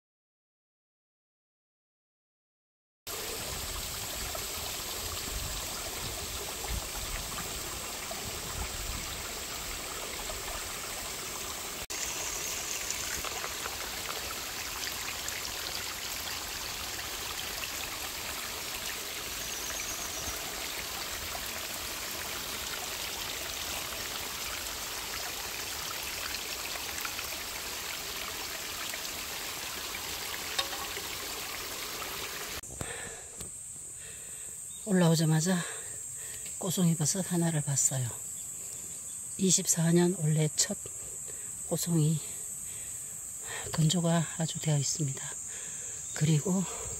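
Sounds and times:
stream trickling over rocks: 0:03.1 - 0:32.6.

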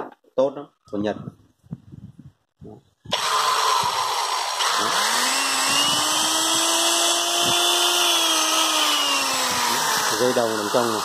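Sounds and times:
electric drill whining: 0:03.1 - 0:11.0.

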